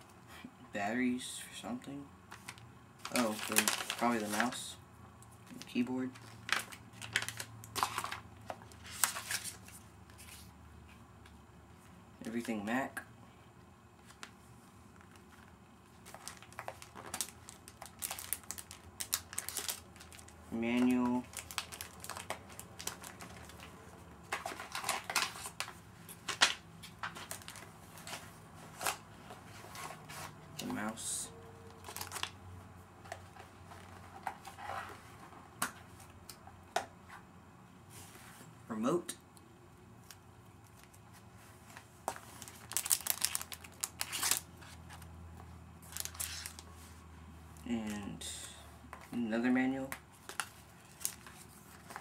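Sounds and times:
packaging rustling: 2.3s - 4.6s, 5.5s - 10.5s, 15.0s - 30.9s, 31.6s - 32.4s, 41.7s - 45.0s, 45.8s - 46.8s, 50.1s - 52.0s.

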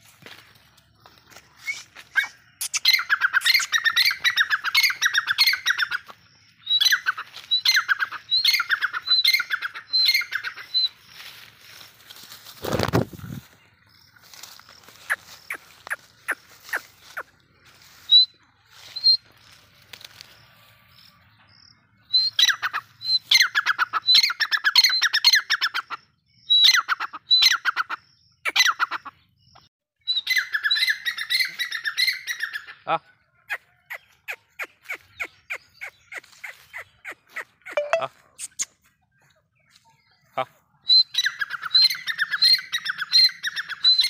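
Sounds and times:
bird calling high-pitched notes: 33.5s - 38.8s.

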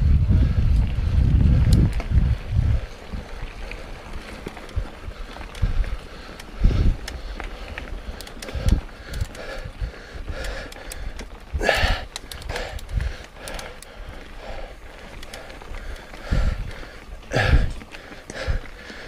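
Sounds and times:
wind rush: 0.0s - 10.4s, 15.6s - 17.8s
bike clicking and rattling: 0.0s - 19.0s.

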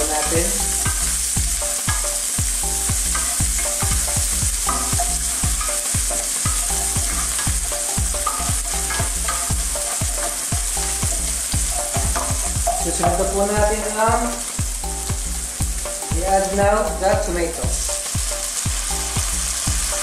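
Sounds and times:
spatula stirring in a pan: 0.0s - 15.2s
onion sizzling in a pan: 0.0s - 20.0s
regular low thumps: 0.0s - 20.0s.

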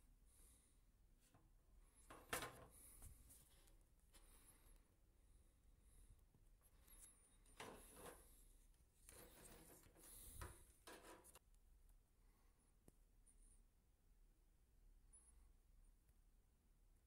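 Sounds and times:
soft plastic rustles and knocks: 6.7s - 11.4s.

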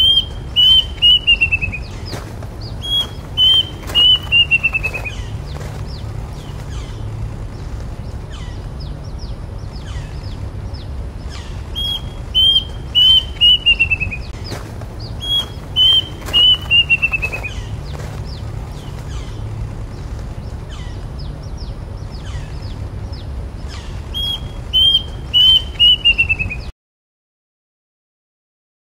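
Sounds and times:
cuckoo singing: 0.0s - 7.1s, 11.2s - 19.4s, 23.6s - 26.7s
faint bird chirps: 0.0s - 7.1s, 8.1s - 26.7s.

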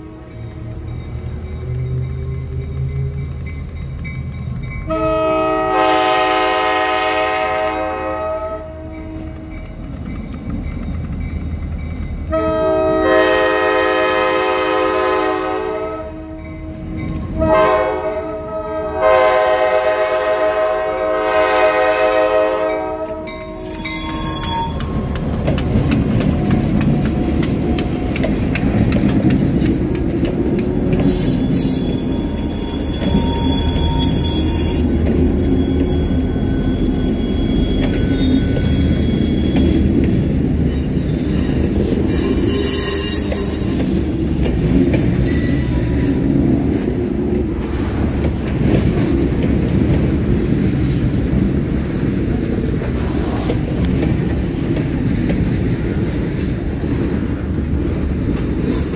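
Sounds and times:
locomotives rumbling over crossing: 0.0s - 42.7s, 43.3s - 58.9s
locomotive horn blasts: 4.9s - 9.3s, 12.3s - 23.5s.

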